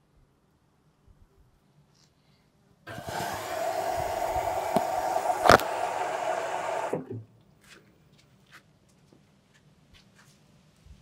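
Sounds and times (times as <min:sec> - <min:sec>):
water rushing into washing machine: 0:02.9 - 0:07.2.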